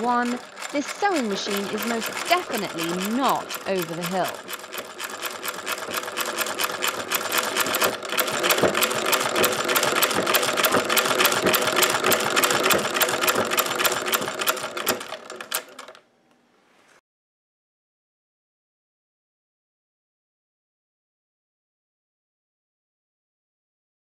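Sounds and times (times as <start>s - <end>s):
treadle sewing machine clattering: 0.0s - 16.0s.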